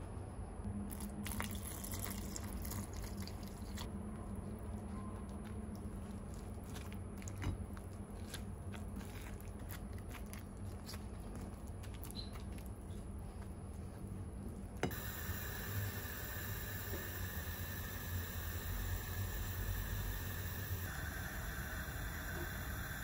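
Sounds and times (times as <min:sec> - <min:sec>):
spoon mixing chunky batter: 0:01.0 - 0:12.8
steady hiss: 0:14.9 - 0:23.0.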